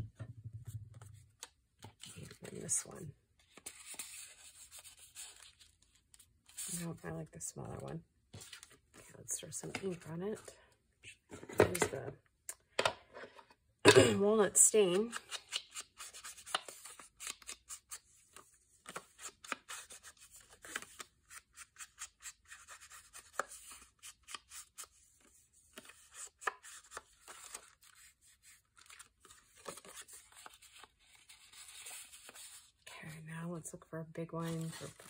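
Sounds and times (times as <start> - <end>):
paper handling: 25.7 - 32.7.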